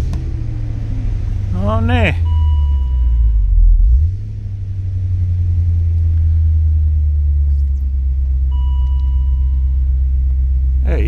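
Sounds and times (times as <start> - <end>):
car engine idling: 0.0 - 11.0
steady electronic beep: 2.2 - 3.7, 8.5 - 9.8.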